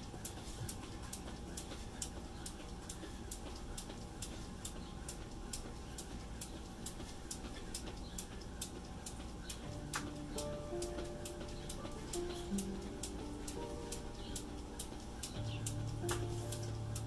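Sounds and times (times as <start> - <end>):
jump rope slapping concrete: 0.0 - 10.2.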